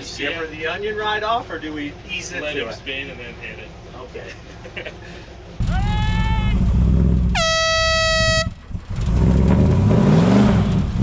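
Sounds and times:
engine rumble: 0.0s - 11.0s
engine revving: 5.6s - 11.0s
air horn blasts: 7.3s - 8.6s.

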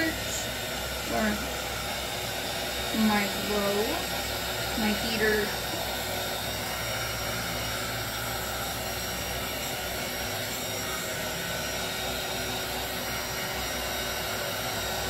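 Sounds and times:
heat gun blowing hot air: 0.0s - 15.0s.

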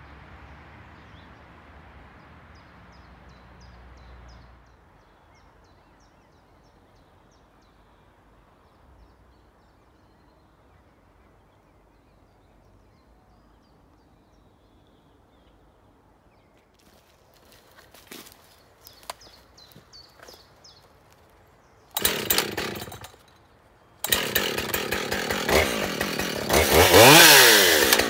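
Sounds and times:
faint outdoor background noise: 0.0s - 22.0s, 23.0s - 24.1s
songbird singing: 2.5s - 24.4s.

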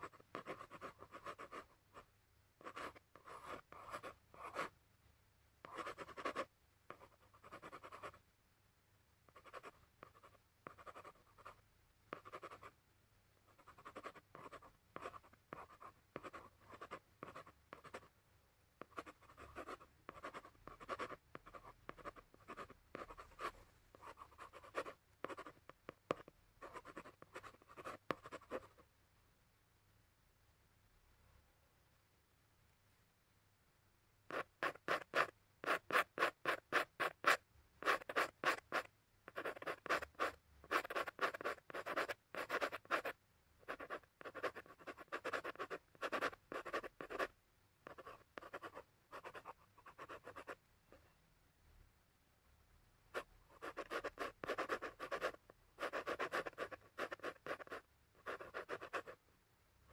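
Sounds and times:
pen scratching on paper: 0.0s - 1.7s, 2.6s - 4.7s, 5.6s - 8.2s, 9.4s - 12.7s, 13.6s - 18.1s, 18.8s - 28.7s, 34.3s - 50.6s, 53.2s - 59.2s.

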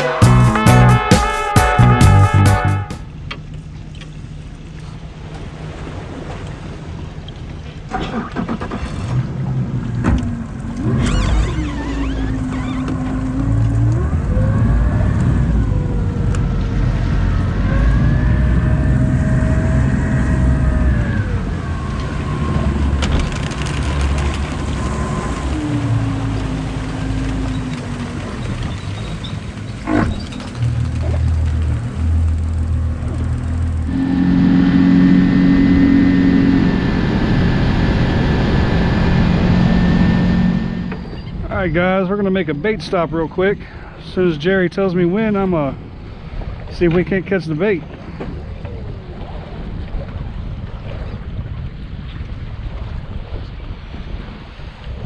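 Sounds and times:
outboard motor running: 4.8s - 41.7s.

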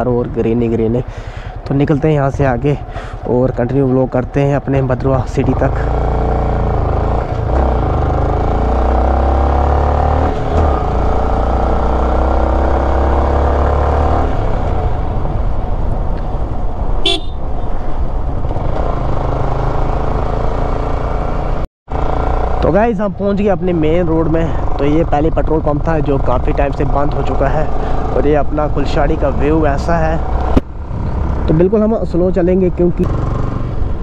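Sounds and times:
short horn beep: 17.0s - 17.4s
motorcycle engine running: 18.5s - 28.2s.

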